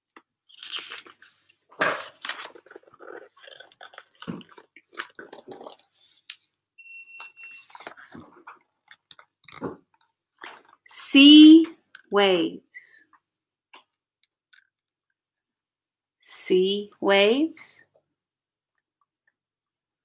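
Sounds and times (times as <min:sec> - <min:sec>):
book pages turning: 0:00.0 - 0:06.5, 0:07.4 - 0:10.8.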